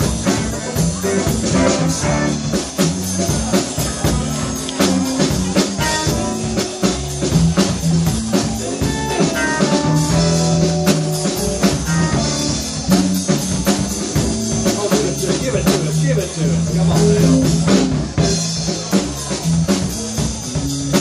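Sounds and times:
electric guitar: 0.0s - 15.8s
drum kit: 0.0s - 21.0s
keyboard: 0.0s - 21.0s.

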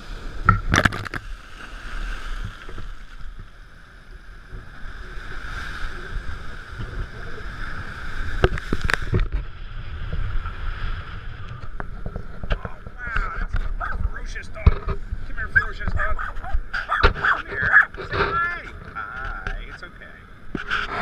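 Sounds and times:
ocean surf breaking over rocks: 0.0s - 21.0s
wind rumbling on microphone: 0.0s - 21.0s.

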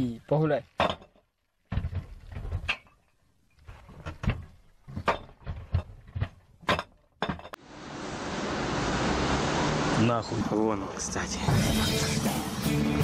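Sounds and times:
sharp irregular knocks and thuds: 0.7s - 3.0s, 3.6s - 7.6s.

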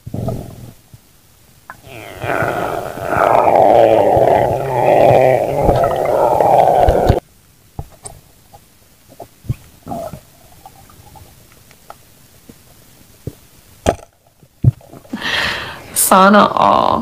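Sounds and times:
underwater gurgling rumble: 1.8s - 7.2s.

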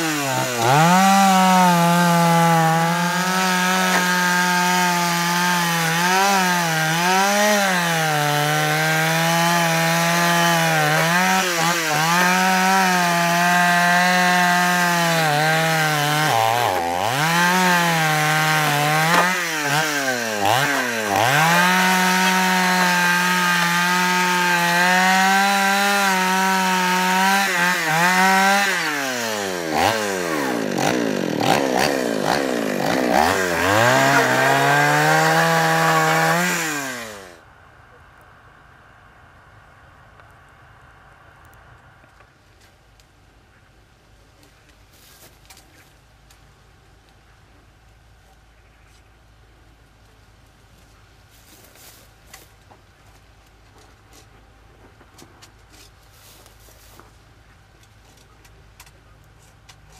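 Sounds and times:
chainsaw cutting wood: 0.0s - 37.4s.

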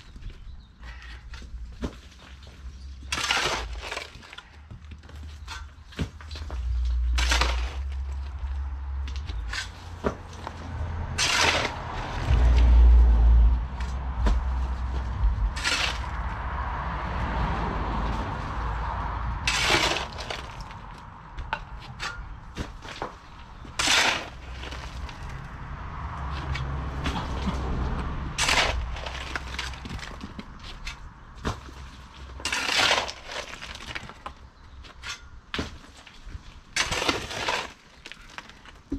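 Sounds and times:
shovel scraping into stony soil: 7.1s - 8.0s, 11.2s - 12.7s, 15.2s - 16.2s, 19.4s - 20.8s, 23.8s - 25.3s, 28.4s - 31.7s, 32.3s - 34.3s, 36.8s - 38.4s
loud low rumble: 10.5s - 19.6s.

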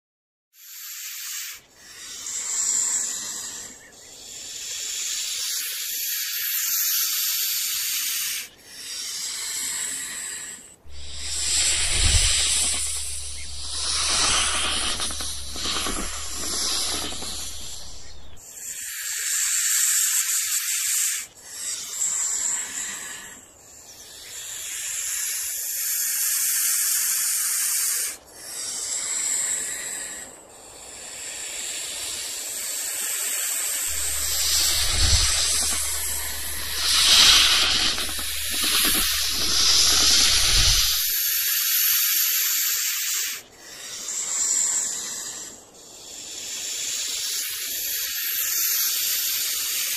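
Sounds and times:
high-pitched hissing noise: 0.6s - 49.9s
low hum: 10.8s - 18.4s, 33.9s - 41.2s.

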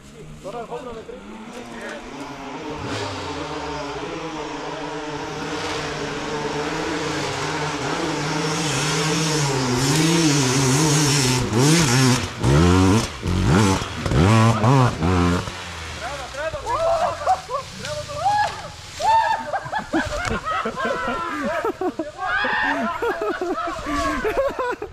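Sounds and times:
dirt bike engine revving: 0.7s - 19.0s.

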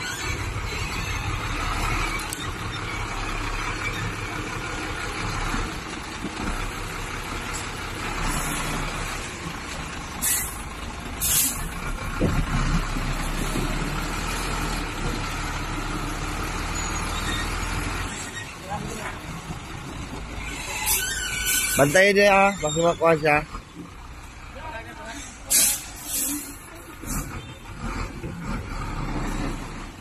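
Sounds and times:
diesel truck engine running: 0.0s - 30.0s
air-brake hisses: 10.2s - 10.6s, 11.2s - 11.7s, 25.2s - 27.3s.

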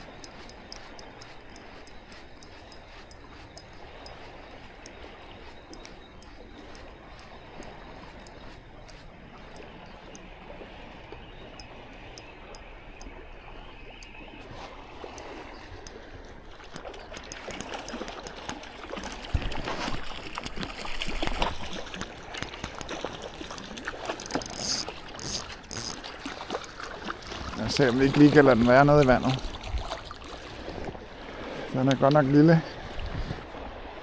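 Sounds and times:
faint regular ticking: 0.0s - 14.3s, 15.0s - 19.3s, 21.2s - 29.4s
fish splashing in water: 14.4s - 31.5s.

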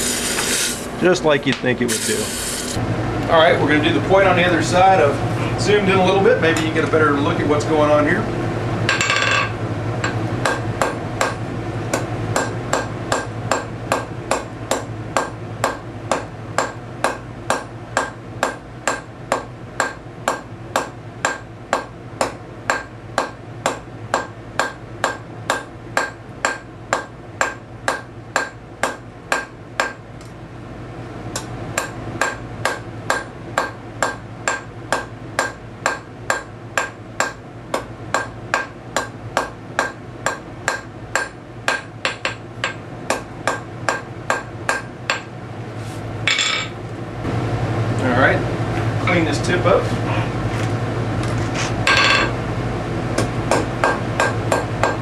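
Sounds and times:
low steady hum: 0.0s - 55.0s
hammer striking steel on anvil: 8.9s - 30.0s, 31.4s - 45.3s.

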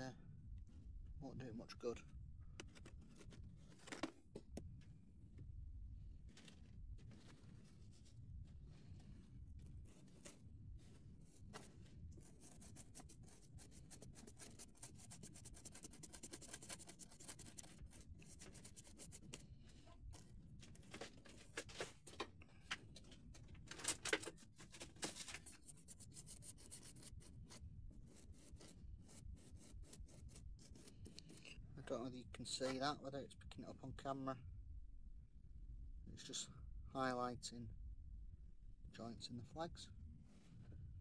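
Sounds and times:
paintbrush scratching on card: 8.6s - 20.4s, 25.3s - 31.6s.

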